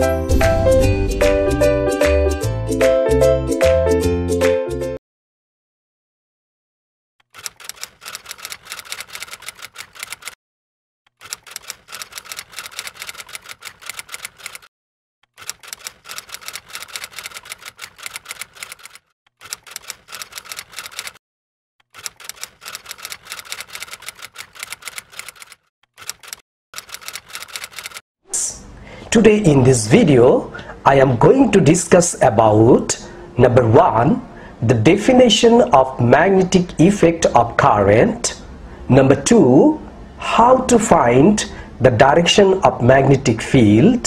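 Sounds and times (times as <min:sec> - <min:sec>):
rapid keyboard key clicks: 0:07.2 - 0:10.4, 0:11.1 - 0:14.7, 0:15.3 - 0:21.2, 0:21.8 - 0:28.0.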